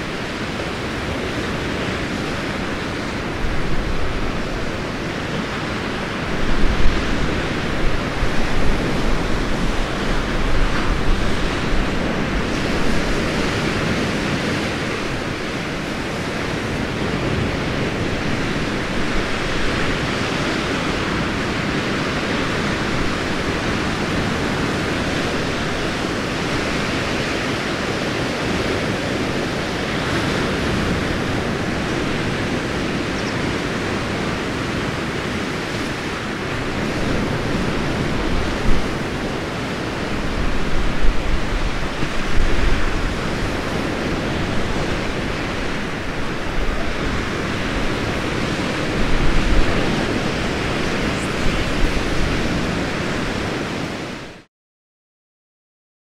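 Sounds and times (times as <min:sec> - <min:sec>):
sea surf rushing: 0:00.0 - 0:54.5
wind: 0:00.0 - 0:54.5.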